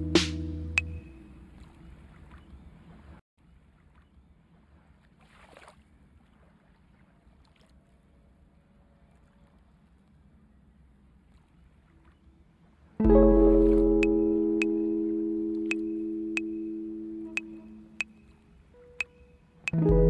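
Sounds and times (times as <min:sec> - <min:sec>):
low hum: 0:00.0 - 0:01.8, 0:13.0 - 0:18.4.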